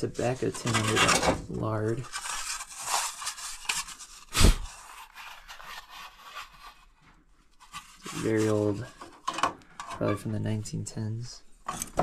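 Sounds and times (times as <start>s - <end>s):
metal tins scraping on wooden shelf: 0.0s - 3.8s, 7.7s - 10.3s.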